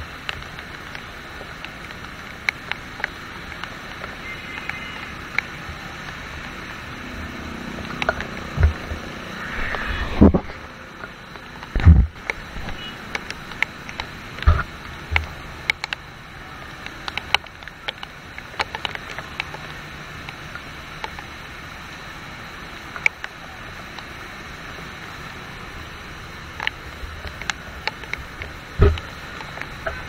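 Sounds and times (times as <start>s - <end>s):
rain hissing: 0.0s - 30.0s
tyres on wet road: 0.0s - 30.0s
sharp ticks: 0.2s - 10.0s
low thumps: 8.4s - 10.8s.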